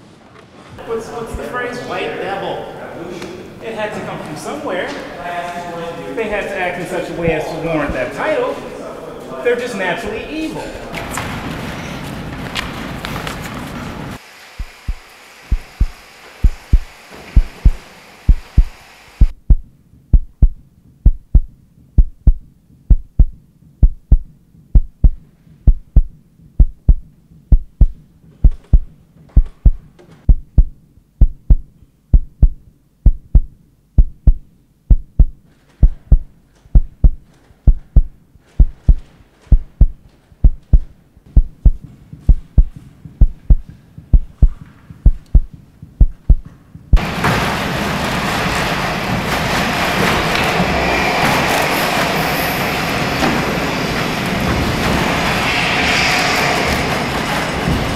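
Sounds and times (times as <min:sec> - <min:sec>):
slow heartbeat thumps: 0:14.6 - 0:47.0.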